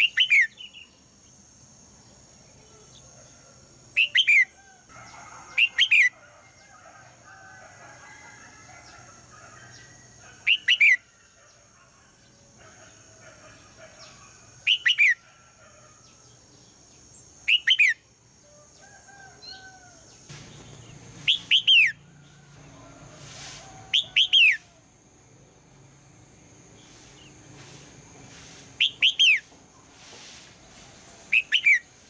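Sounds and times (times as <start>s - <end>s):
bird whistling call: 0.0s - 0.6s, 4.0s - 4.5s, 17.5s - 18.0s, 21.2s - 22.0s, 23.9s - 24.7s, 28.8s - 29.5s, 31.3s - 31.9s.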